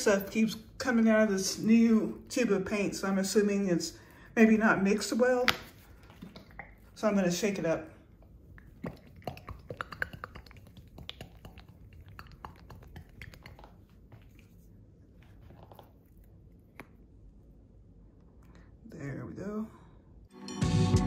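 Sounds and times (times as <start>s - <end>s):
paint bottle being shaken: 8.6s - 16.0s.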